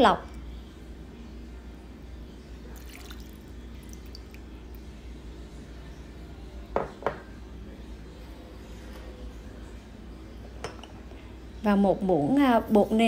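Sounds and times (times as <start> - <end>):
water trickling into bowl: 2.7 - 4.8.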